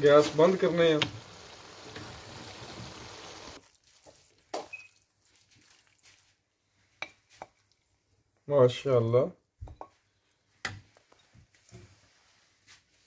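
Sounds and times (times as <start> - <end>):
food hissing in a wok: 0.0 - 3.6.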